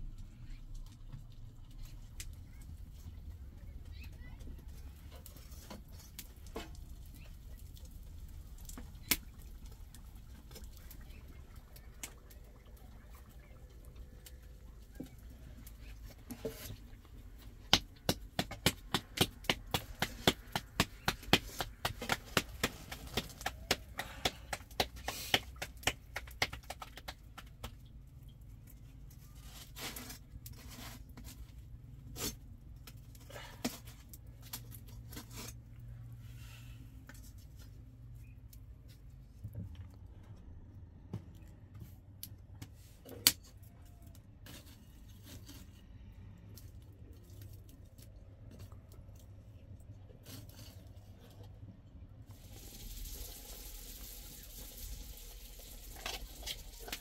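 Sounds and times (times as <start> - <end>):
hands slapping dough: 17.6 - 27.9.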